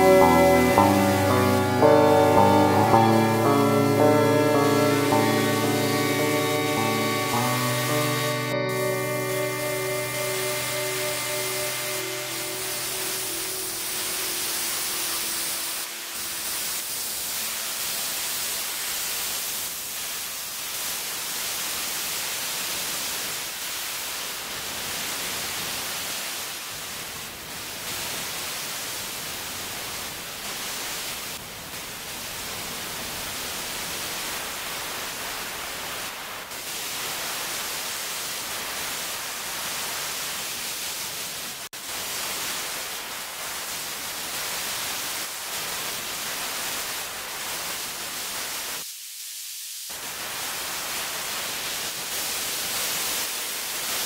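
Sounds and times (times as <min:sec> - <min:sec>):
steady high hiss: 0:00.0 - 0:27.2.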